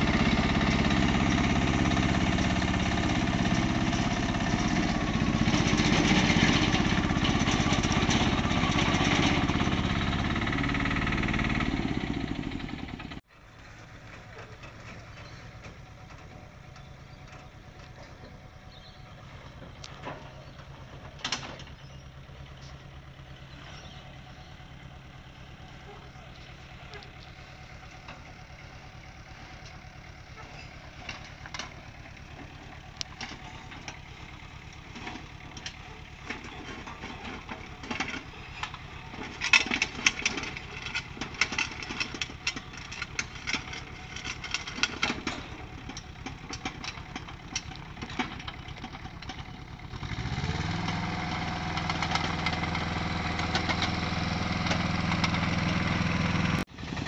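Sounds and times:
tracks clanking on metal ramps: 0.0 - 18.6, 19.4 - 22.0, 26.0 - 57.0
mini excavator diesel engine: 0.0 - 57.0.

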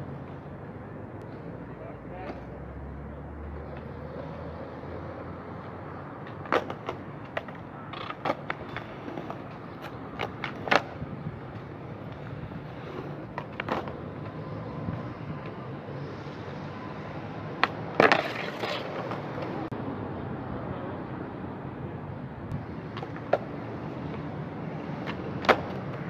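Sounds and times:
skateboard wheels rolling on concrete: 0.0 - 26.0
skateboard clacks: 6.2 - 14.1, 17.6 - 19.6, 22.9 - 24.3, 25.0 - 26.0.

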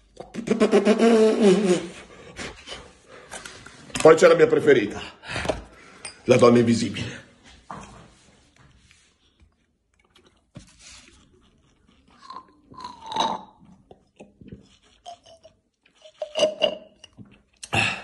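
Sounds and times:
slurping through a straw: 10.3 - 17.8.

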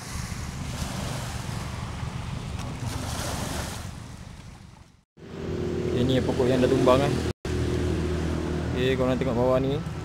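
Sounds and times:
small waves washing onto shore: 0.0 - 5.0.

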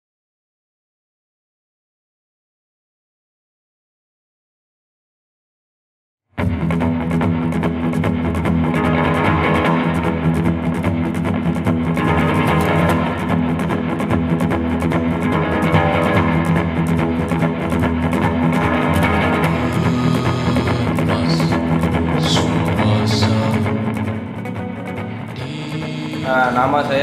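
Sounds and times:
rock music with guitar and drums: 6.4 - 27.0.

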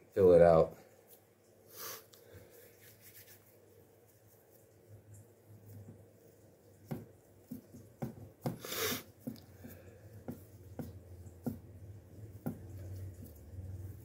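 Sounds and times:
soft taps of fingers on dough: 6.8 - 8.6, 9.2 - 14.0.

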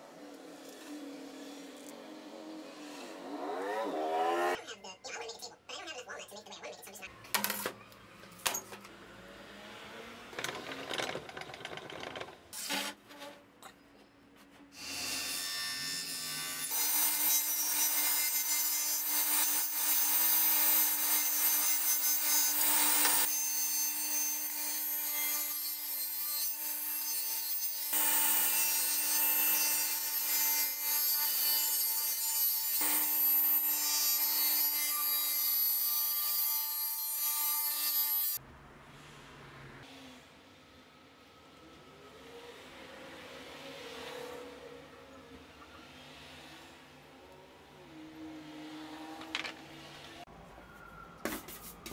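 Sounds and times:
table saw motor hum: 0.0 - 4.6
saw blade cutting wood: 14.5 - 27.3.

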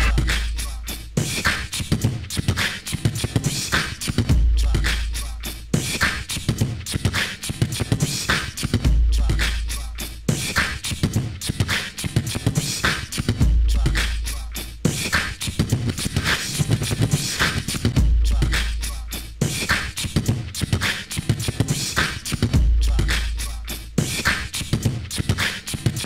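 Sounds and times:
deep bass note: 0.0 - 0.3
rhythmic percussive music: 0.0 - 26.0.

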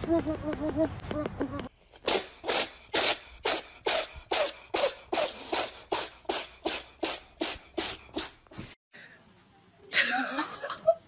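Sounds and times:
breathy puffs of air: 2.0 - 9.2.

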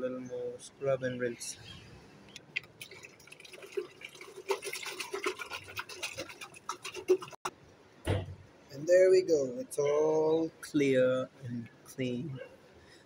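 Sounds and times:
water sloshing in a glass jar: 2.6 - 7.5.

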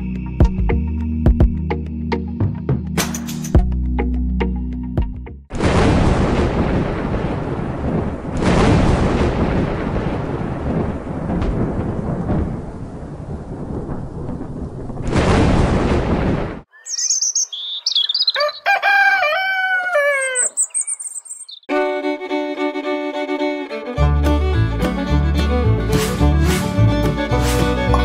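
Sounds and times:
thunder rumbling: 5.5 - 16.7
heavy rain: 5.6 - 16.6
birds chirping: 16.7 - 21.7
rooster crowing: 17.8 - 20.7.

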